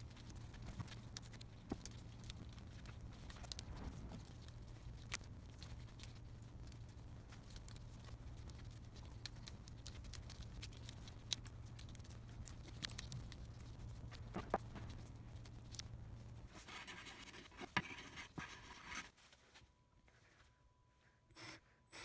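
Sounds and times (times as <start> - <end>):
small clicks and ticks: 0.0 - 16.0
steady low hum: 0.0 - 22.0.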